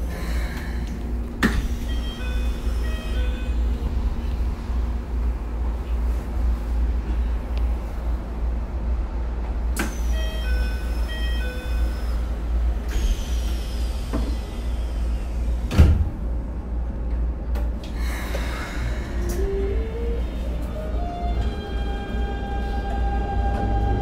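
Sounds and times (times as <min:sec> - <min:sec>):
train running rumble: 0:00.0 - 0:24.0
inverter rising musical scale: 0:19.5 - 0:24.0.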